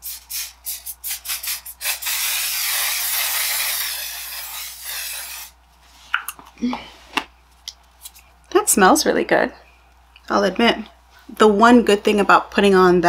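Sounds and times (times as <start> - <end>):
spray misting hiss: 0.0 - 5.5.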